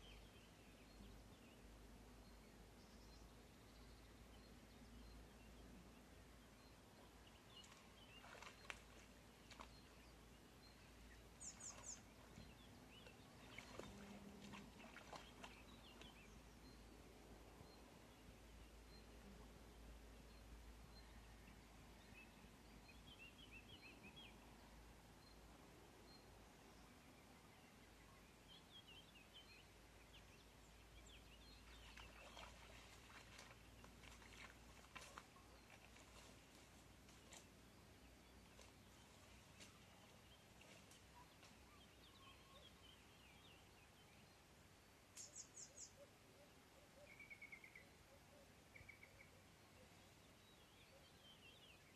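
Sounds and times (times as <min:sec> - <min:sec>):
small birds chirping: 0:00.0 - 0:51.9
faint bird chirps: 0:06.5 - 0:16.9, 0:38.1 - 0:44.4, 0:45.1 - 0:51.9
rustling in dry reeds and brush: 0:07.6 - 0:10.2, 0:10.9 - 0:16.1, 0:31.6 - 0:41.7.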